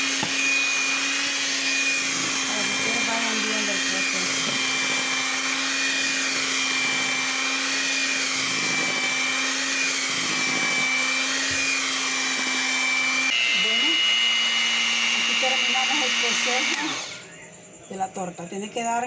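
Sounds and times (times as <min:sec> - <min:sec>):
electric hand mixer whining: 0:00.0 - 0:17.3.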